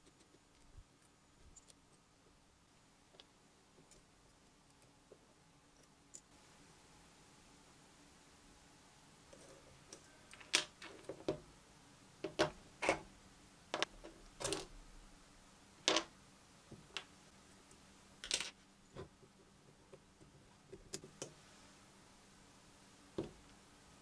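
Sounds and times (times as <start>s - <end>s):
small metal parts clicking and knocking: 0.0s - 2.0s, 9.4s - 11.4s, 13.7s - 14.7s, 18.2s - 19.1s.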